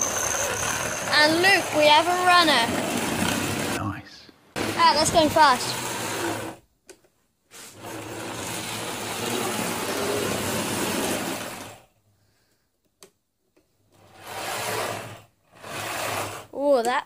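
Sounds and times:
model train motor buzzing hum: 0:00.0 - 0:03.7, 0:14.1 - 0:16.5.

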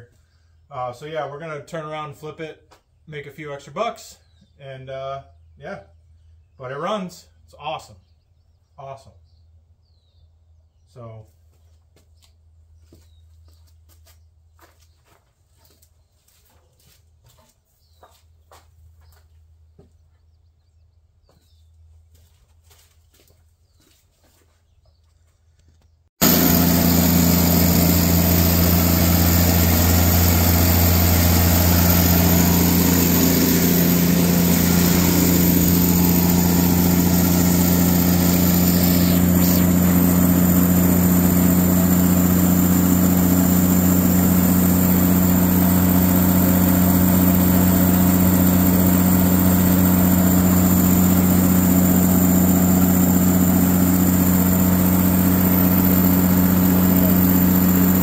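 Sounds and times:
generator engine humming: 0:26.2 - 0:58.0.

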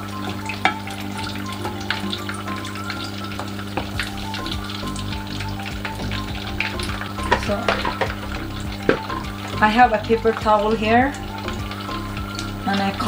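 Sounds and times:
food deep-frying in oil: 0:00.0 - 0:13.0.

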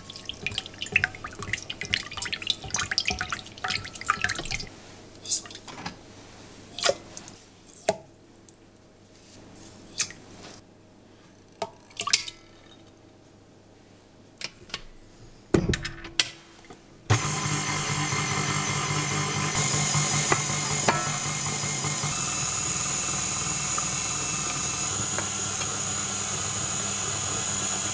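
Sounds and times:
stand mixer motor running: 0:17.1 - 0:27.9.

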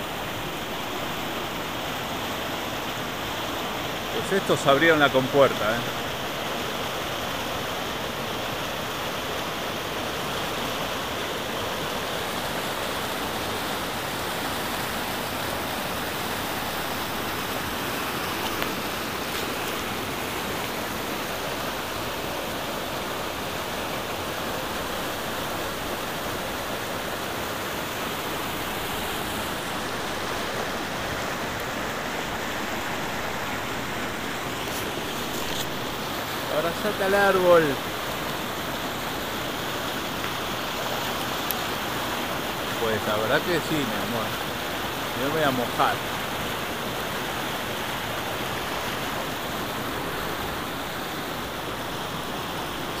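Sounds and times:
stream rushing over rocks: 0:00.0 - 0:53.0.

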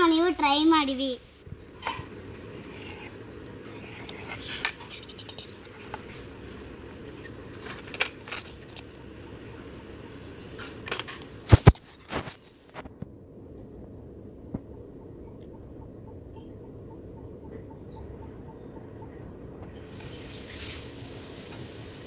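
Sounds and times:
steady low hum: 0:01.2 - 0:22.0.

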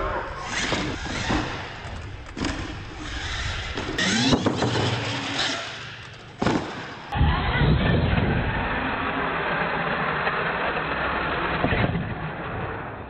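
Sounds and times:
thuds on wooden ramps: 0:00.5 - 0:07.2
toy truck motor revving: 0:02.9 - 0:06.4.

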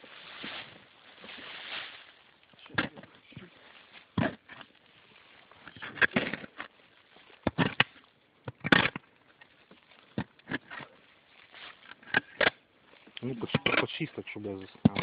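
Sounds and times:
shovel scraping into soil and leaves: 0:00.0 - 0:02.2.

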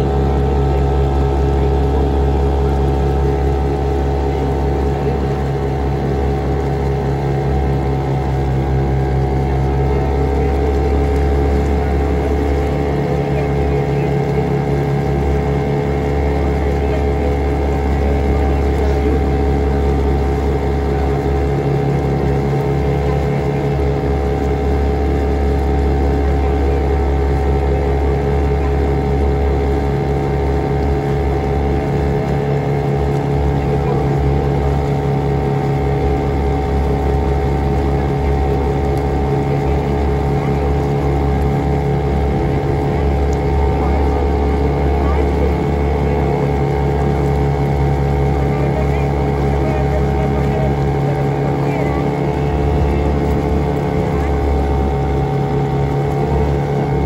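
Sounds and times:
motorboat engine humming: 0:00.0 - 0:57.0.

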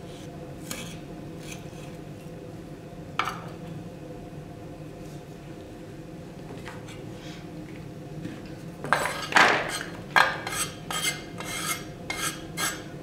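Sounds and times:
knife scraping cutting board: 0:08.9 - 0:12.9.

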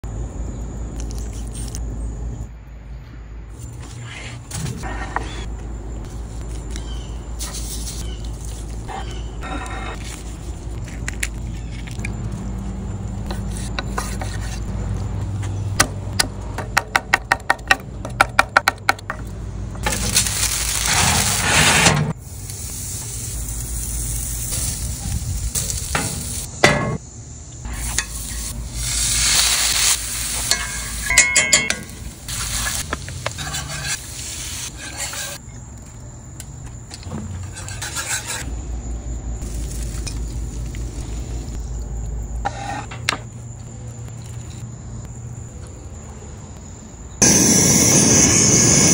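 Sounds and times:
food sizzling on grill: 0:19.8 - 0:21.4, 0:22.2 - 0:26.6, 0:27.6 - 0:35.4, 0:47.2 - 0:48.9
wooden spoon scraping skillet: 0:32.3 - 0:34.0, 0:34.6 - 0:35.4, 0:37.4 - 0:38.4, 0:42.4 - 0:43.0.

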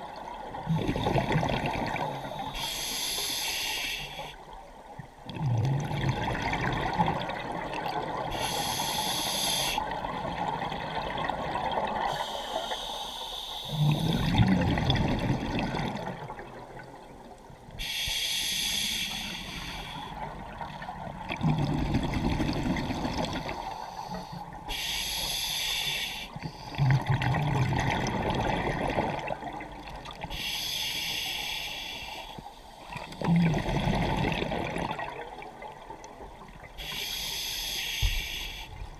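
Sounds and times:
regulator hissing inhale: 0:02.1 - 0:04.4, 0:08.3 - 0:09.8, 0:12.1 - 0:14.3, 0:17.8 - 0:20.3, 0:23.5 - 0:26.8, 0:30.3 - 0:32.8, 0:36.8 - 0:38.9
bubbling exhale underwater: 0:05.3 - 0:07.9, 0:13.7 - 0:16.5, 0:26.8 - 0:29.6, 0:33.2 - 0:35.4.

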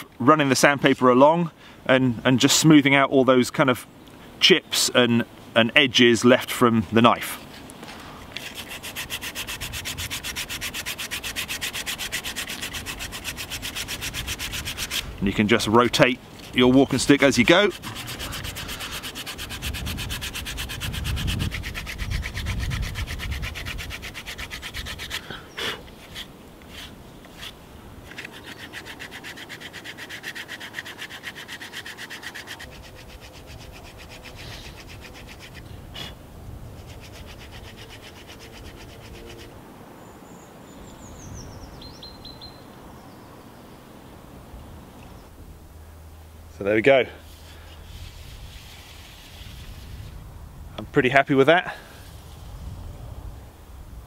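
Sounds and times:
sandpaper rasping on wood: 0:08.4 - 0:15.1, 0:16.5 - 0:36.1, 0:36.8 - 0:39.5, 0:47.2 - 0:50.1.

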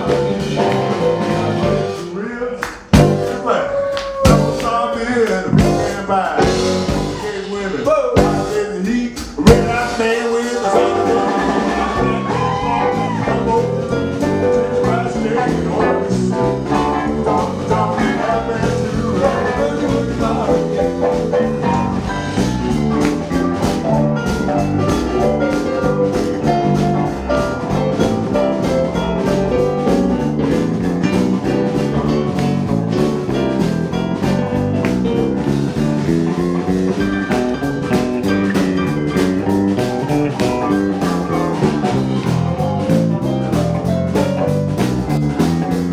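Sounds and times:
electric bass: 0:00.0 - 0:03.6, 0:04.2 - 0:45.9
drum kit: 0:00.0 - 0:45.9
electric guitar: 0:09.4 - 0:45.9.

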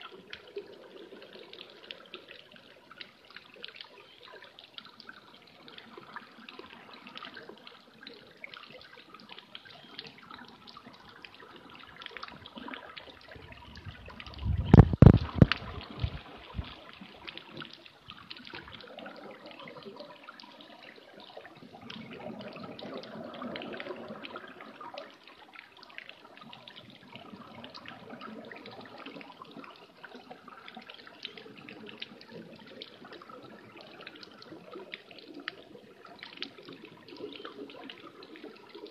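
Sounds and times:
underwater crackle of fine clicks: 0:14.2 - 0:19.7.

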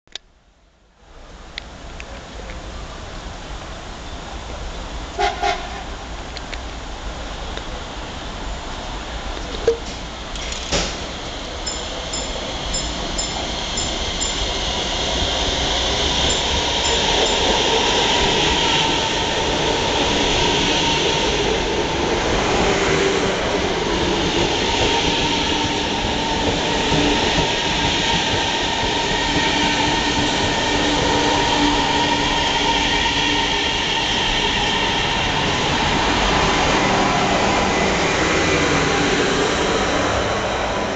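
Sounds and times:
train wheels on rails: 0:08.6 - 0:40.9.

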